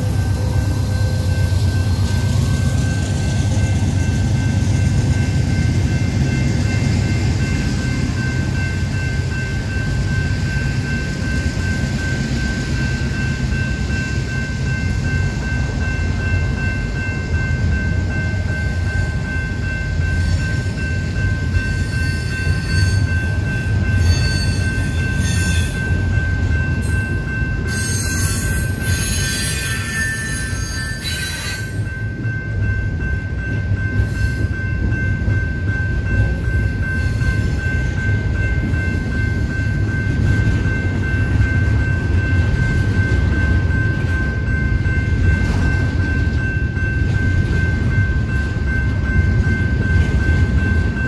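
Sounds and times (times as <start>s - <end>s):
high-pitched ringing tone: 0.0s - 51.0s
train cars rumbling past: 0.0s - 51.0s.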